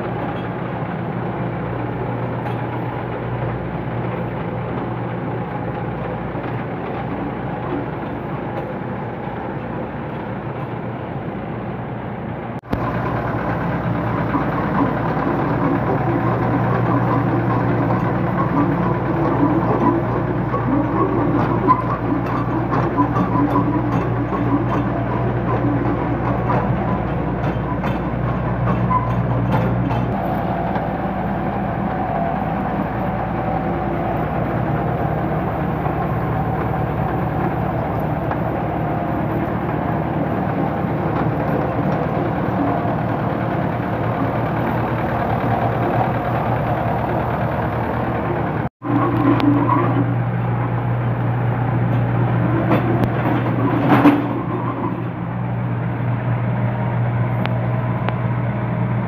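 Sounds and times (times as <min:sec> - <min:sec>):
tractor engine running: 0:00.0 - 0:59.0
rotary tiller churning: 0:12.7 - 0:56.0.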